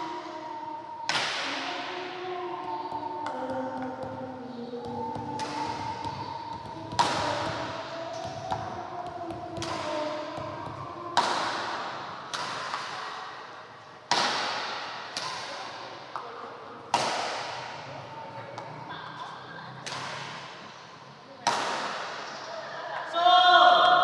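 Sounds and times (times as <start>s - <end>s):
racket striking shuttlecock: 4.8s - 13.5s, 14.1s - 16.3s, 16.9s - 17.8s, 19.8s - 20.7s, 21.4s - 22.4s.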